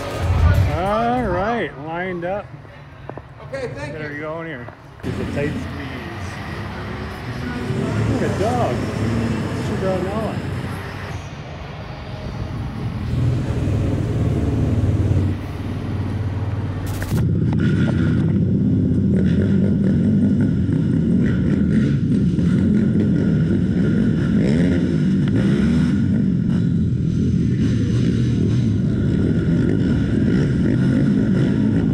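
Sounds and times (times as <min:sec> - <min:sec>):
quad bike engines running: 0:00.0 - 0:31.9
close quad bike engine revving: 0:05.0 - 0:11.1, 0:17.1 - 0:31.9.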